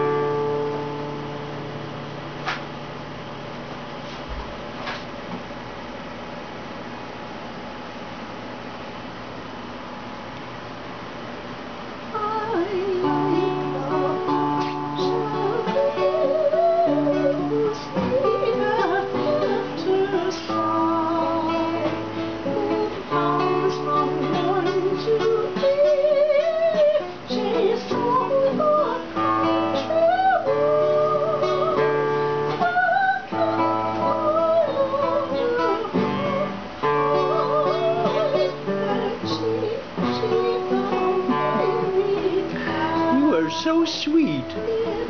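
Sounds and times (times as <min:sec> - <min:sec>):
strummed guitar: 0:00.0 - 0:05.9, 0:10.0 - 0:45.0
person singing with vibrato: 0:12.1 - 0:45.0.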